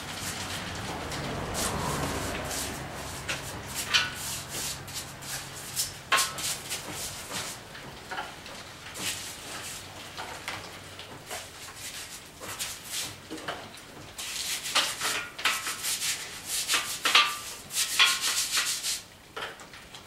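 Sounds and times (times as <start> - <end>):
brush scrubbing metal: 0.0 - 7.7, 9.0 - 10.0, 11.3 - 13.2, 14.2 - 19.1.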